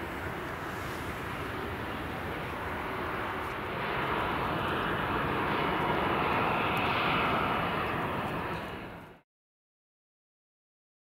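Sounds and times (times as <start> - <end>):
jet engine rush: 0.0 - 9.2.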